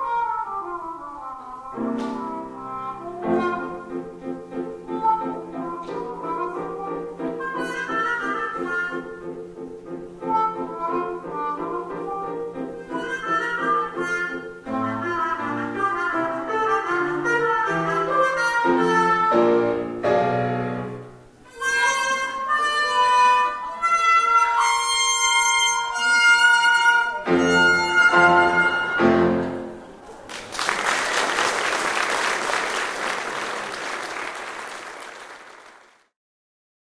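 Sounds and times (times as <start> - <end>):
trumpet and trombone duet: 0.0 - 4.0, 10.3 - 20.0, 21.5 - 29.7
piano: 0.0 - 35.4
audience applauding: 28.7 - 36.1.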